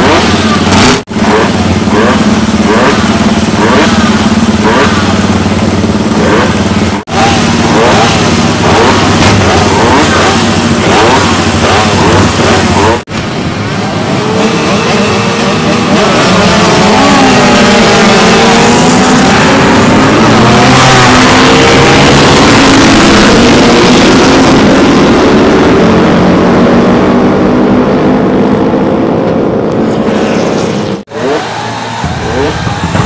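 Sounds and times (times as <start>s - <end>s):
motorcycles revving and pulling away: 0.0s - 33.0s
quiet engine running: 0.3s - 21.2s.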